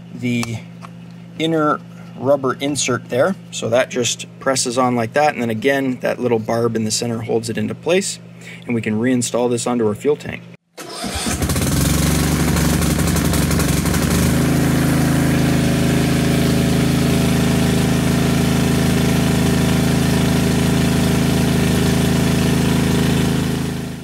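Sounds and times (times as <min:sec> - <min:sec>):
mower engine running: 0:10.8 - 0:24.0.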